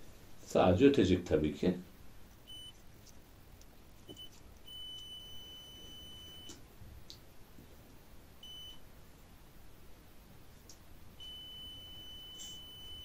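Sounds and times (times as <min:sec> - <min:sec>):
multimeter buzzer beeping: 0:02.4 - 0:02.8, 0:04.1 - 0:06.6, 0:08.4 - 0:08.8, 0:11.2 - 0:13.0.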